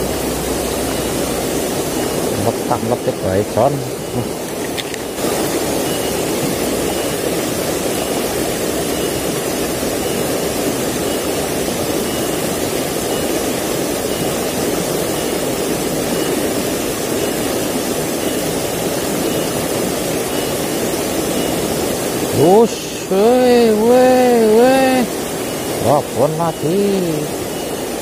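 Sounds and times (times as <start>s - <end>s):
stream rushing over rocks: 0.0s - 28.0s
faint high chirp: 5.8s - 7.2s, 23.4s - 28.0s.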